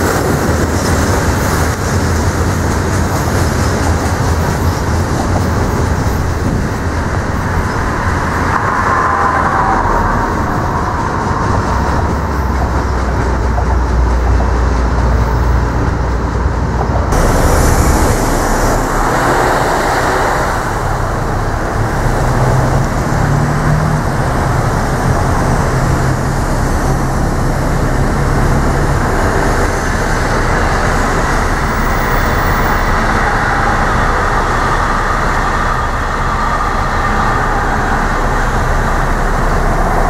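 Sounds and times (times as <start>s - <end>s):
passenger train approaching: 0.0s - 40.0s
road traffic: 0.0s - 40.0s
vehicle engine droning: 17.1s - 40.0s.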